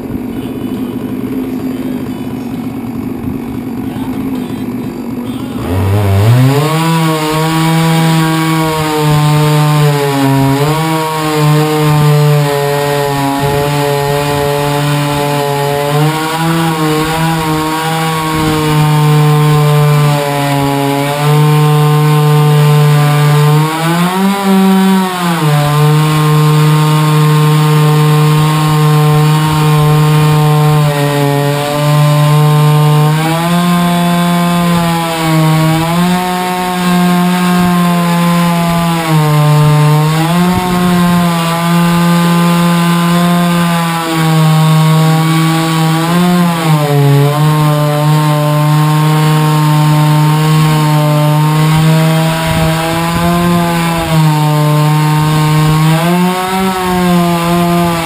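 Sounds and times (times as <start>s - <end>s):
chainsaw cutting log: 0.0s - 58.0s.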